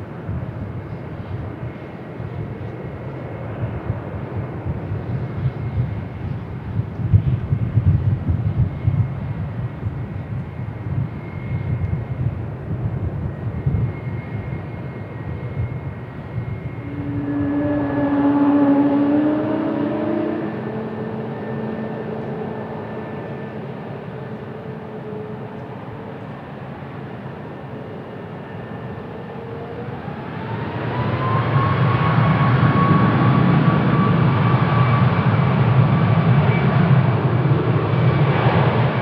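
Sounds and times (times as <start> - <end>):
jet engines rumbling: 0.0 - 39.0
jet engines whining: 0.0 - 39.0.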